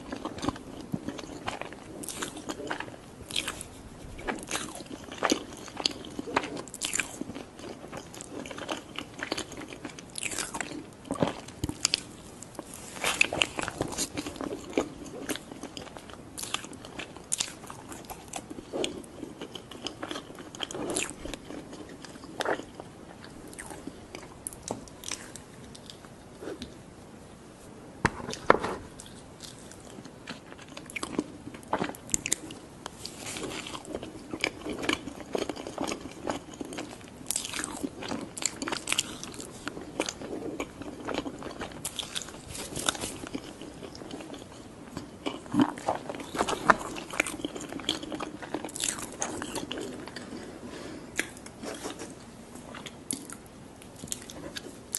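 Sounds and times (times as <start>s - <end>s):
person biting and chewing food: 45.2s - 50.5s.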